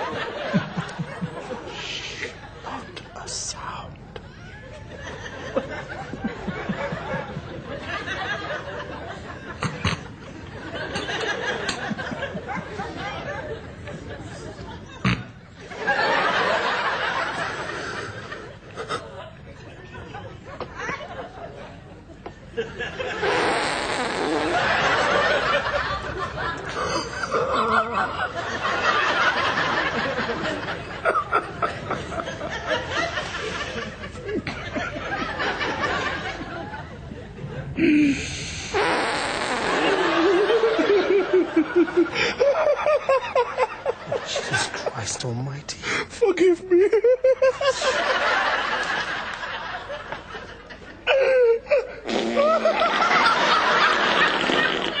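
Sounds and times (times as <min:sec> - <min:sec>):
person laughing: 0:26.6 - 0:28.2.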